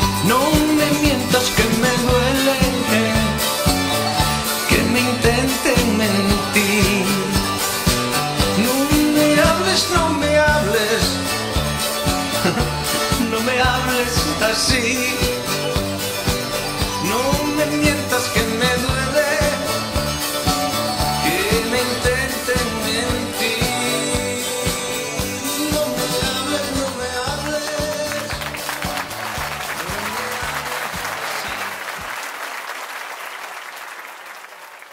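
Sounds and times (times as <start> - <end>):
man singing into a microphone: 0.0 - 3.8, 4.5 - 7.8, 8.4 - 11.5, 12.5 - 15.8, 16.9 - 20.0, 21.1 - 28.4, 29.8 - 31.6
acoustic guitars strumming: 0.0 - 31.8
audience applause: 26.7 - 34.9.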